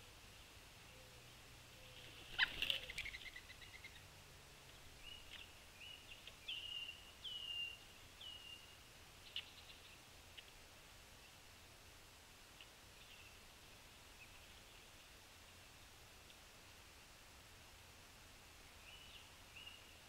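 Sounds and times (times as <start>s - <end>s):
faint clicks: 12.6s - 12.8s, 16.2s - 16.4s.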